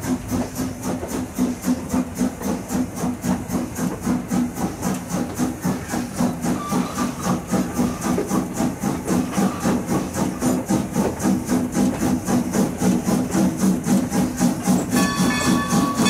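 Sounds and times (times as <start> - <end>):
steam locomotive chuffing: 0.0 - 16.0.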